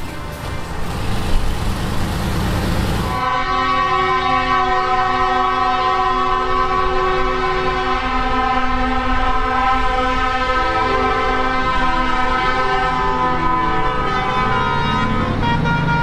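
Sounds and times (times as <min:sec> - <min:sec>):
heavy truck passing: 0:00.0 - 0:03.5, 0:13.0 - 0:16.0
truck air horn chord: 0:02.2 - 0:16.0.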